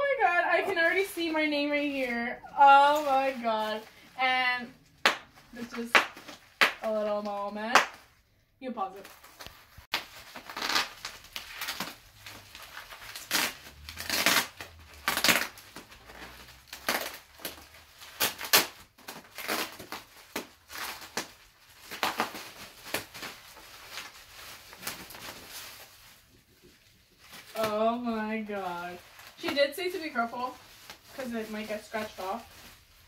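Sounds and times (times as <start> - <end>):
bubble wrap crinkling: 0.0 - 8.2, 8.8 - 33.0.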